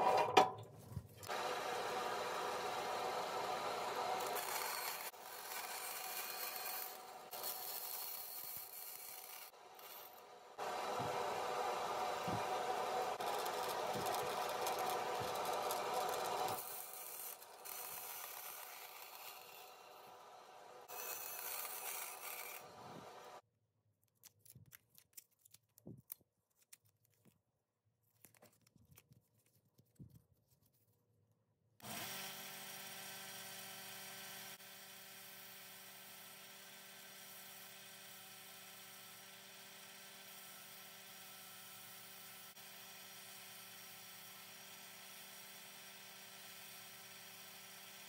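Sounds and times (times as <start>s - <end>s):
bandsaw cutting wood: 1.2s - 23.4s, 31.8s - 48.0s
belt sander motor humming: 1.2s - 23.4s.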